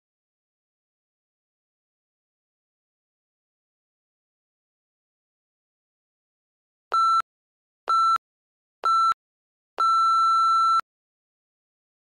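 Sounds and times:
interval timer beeps: 6.9s - 7.2s, 7.9s - 8.2s, 8.8s - 9.2s, 9.8s - 10.8s.

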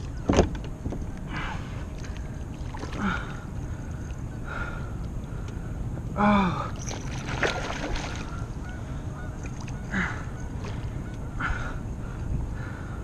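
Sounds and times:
paddle splashing in water: 2.0s - 3.4s, 6.8s - 8.4s.

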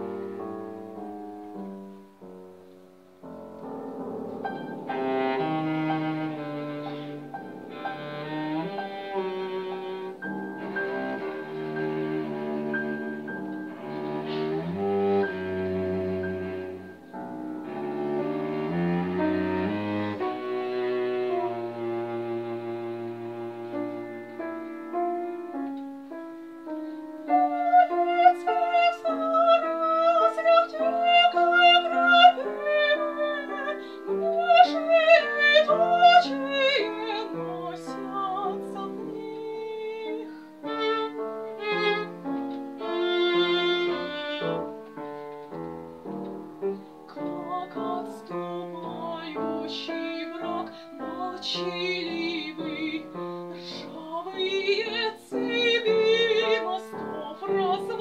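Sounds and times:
cello: 0.0s - 58.0s
piano: 0.0s - 58.0s
soprano singing with vibrato: 27.3s - 42.2s, 47.2s - 58.0s.

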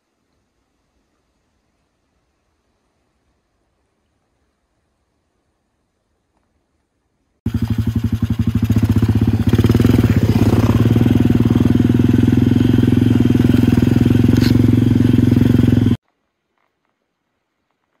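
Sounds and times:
dirt bike engine under throttle: 7.5s - 16.0s.

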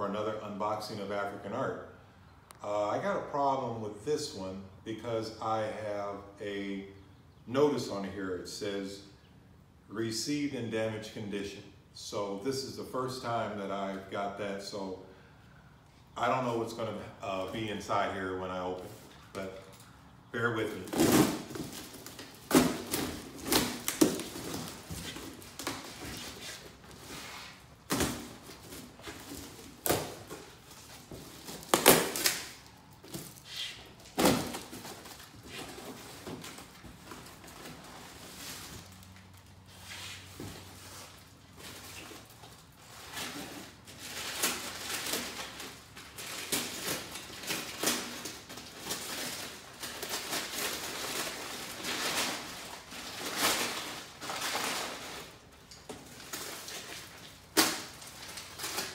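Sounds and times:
contents rustling: 18.8s - 58.9s
cardboard flaps scraping: 20.6s - 39.0s.

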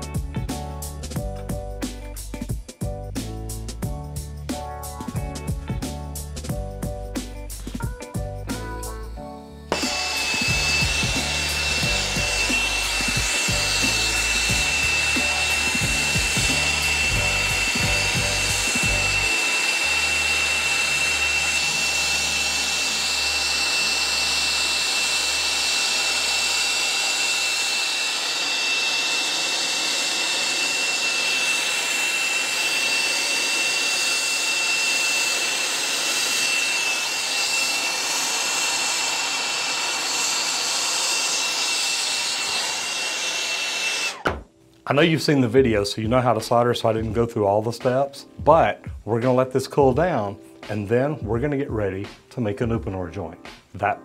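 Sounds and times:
torch hissing with high whistle: 9.5s - 44.3s.

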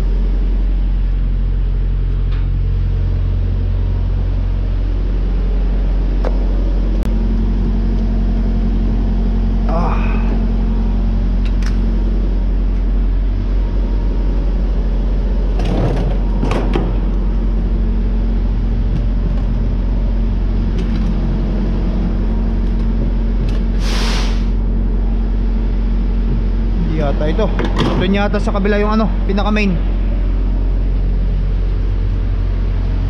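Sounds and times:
low mechanical hum: 0.0s - 33.0s
air hissing: 23.6s - 24.7s.

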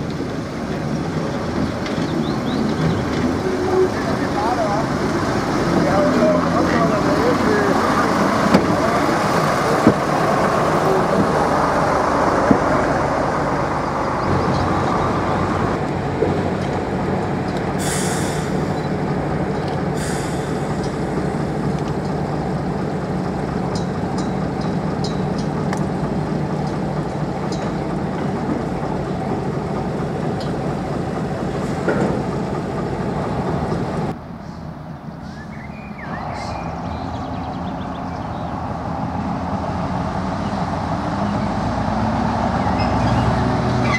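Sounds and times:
diesel locomotive running: 0.0s - 43.9s
wheels squeaking and clicking: 42.6s - 43.9s.

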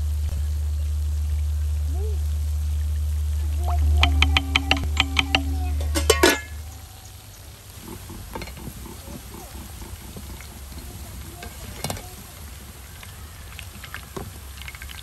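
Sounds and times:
faint sizzle: 0.0s - 15.0s
low steady hum: 0.0s - 15.0s
utensil scraping in a pot: 3.6s - 6.9s, 7.8s - 12.8s.

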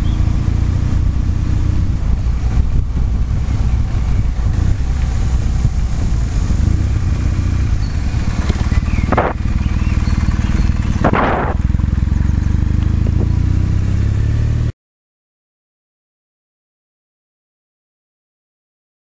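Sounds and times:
motorcycle engine running: 0.0s - 14.7s
rushing noise: 1.9s - 12.0s.

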